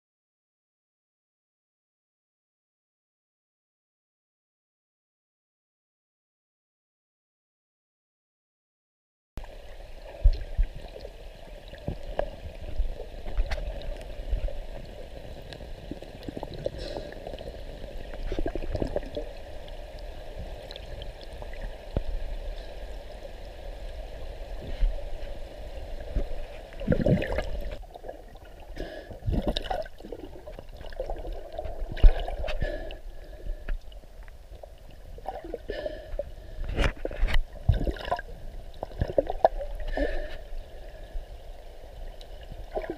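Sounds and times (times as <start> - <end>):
underwater water sloshing: 9.4 - 42.9.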